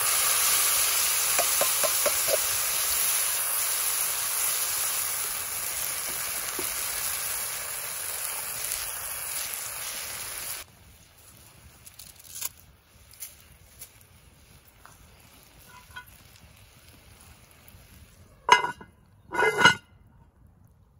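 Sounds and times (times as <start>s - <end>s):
sauce sizzling in a pot: 0.0s - 18.8s.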